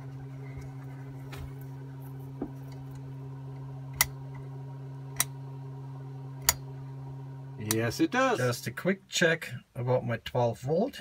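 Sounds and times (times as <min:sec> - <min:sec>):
low electrical hum: 0:00.0 - 0:11.0
lamp switch clicking: 0:03.9 - 0:04.4, 0:05.1 - 0:05.4, 0:06.4 - 0:06.8, 0:07.6 - 0:07.9.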